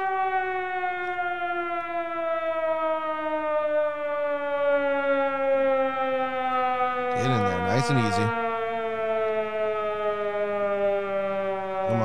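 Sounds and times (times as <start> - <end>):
siren tone falling in pitch: 0.0 - 12.0.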